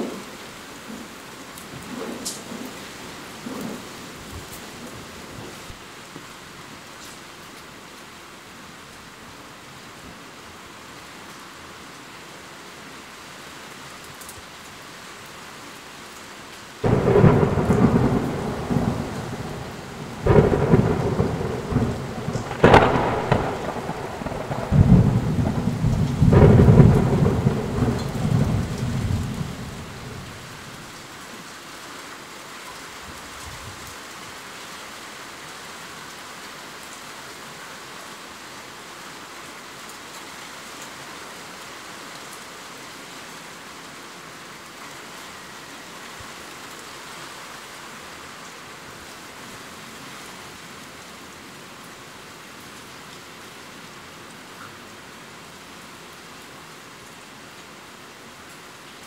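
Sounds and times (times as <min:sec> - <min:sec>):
heavy rain falling: 0:00.0 - 0:59.0
rolling thunder crashes: 0:16.8 - 0:30.4.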